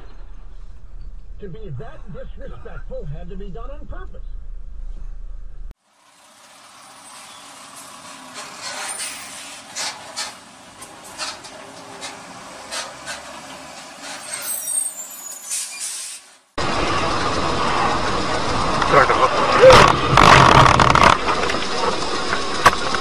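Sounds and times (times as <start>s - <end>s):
road hiss: 5.8s - 20.3s
short sharp hisses and clicks: 15.5s - 16.5s.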